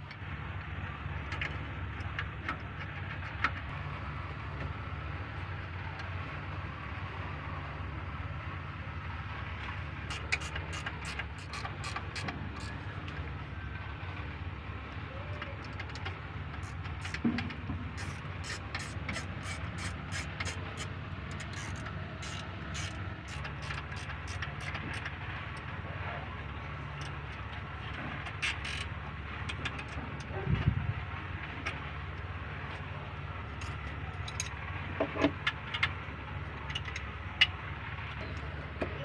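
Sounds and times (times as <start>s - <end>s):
steady low rumble: 0.0s - 39.0s
wrench metal clicks and clinks: 10.1s - 12.8s, 18.0s - 25.1s, 28.4s - 28.9s, 33.6s - 34.5s.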